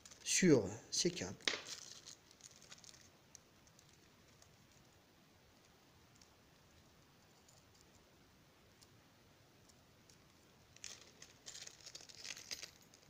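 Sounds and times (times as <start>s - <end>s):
small metal tips clinking: 1.4s - 4.9s, 6.1s - 8.0s, 9.7s - 13.0s.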